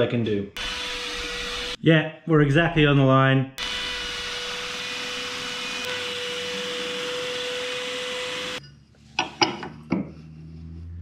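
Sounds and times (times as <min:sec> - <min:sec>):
router running high pitch: 0:00.6 - 0:01.8, 0:03.6 - 0:08.6.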